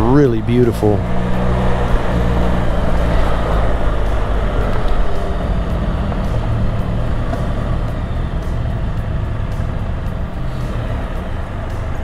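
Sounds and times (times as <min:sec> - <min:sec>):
motorcycle engine rumble: 0:00.0 - 0:12.0
road noise: 0:00.0 - 0:12.0.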